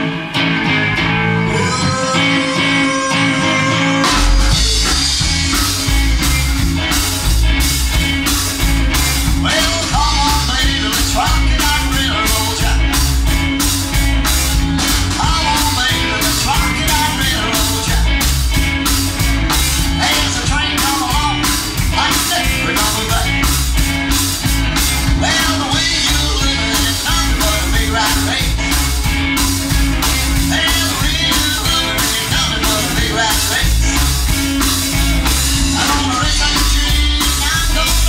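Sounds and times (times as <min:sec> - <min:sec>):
drum kit beat: 0:00.0 - 0:38.0
rock and roll band: 0:00.0 - 0:38.0
person singing: 0:00.8 - 0:05.3, 0:09.3 - 0:13.1, 0:14.8 - 0:18.2, 0:19.9 - 0:23.5, 0:25.0 - 0:28.8, 0:30.4 - 0:34.2, 0:35.6 - 0:38.0.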